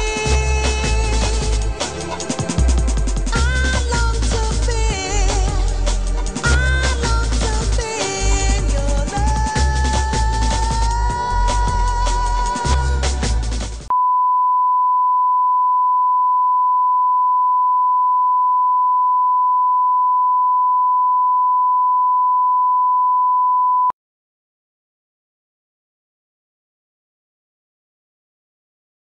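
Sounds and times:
music: 0.0 - 13.9.

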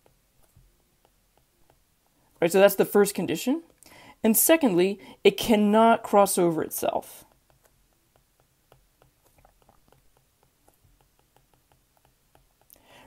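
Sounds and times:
stylus tapping glass screen: 0.0 - 2.4, 7.2 - 12.9.

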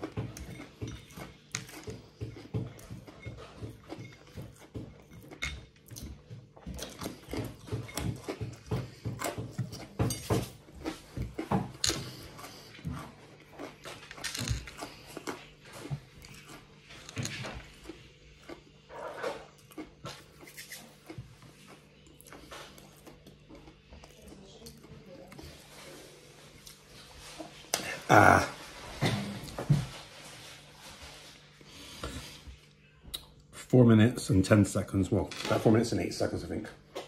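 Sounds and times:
chewing and crunching: 0.0 - 28.1.

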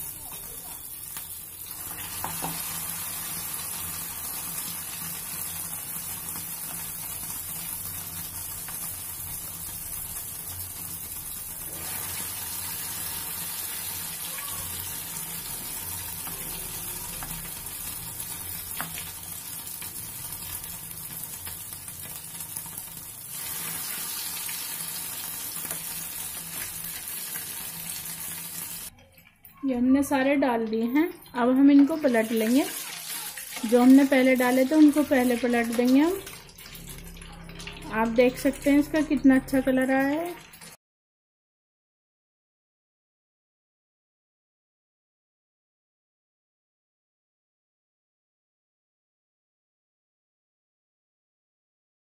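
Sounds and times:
cutlets sizzling in hot oil: 0.0 - 29.0, 31.0 - 40.8.

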